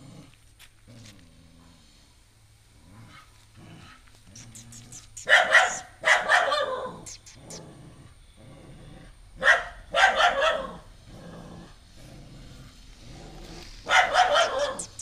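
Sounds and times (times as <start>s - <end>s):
dog barking: 4.6s - 7.6s, 9.4s - 10.8s, 13.9s - 15.0s.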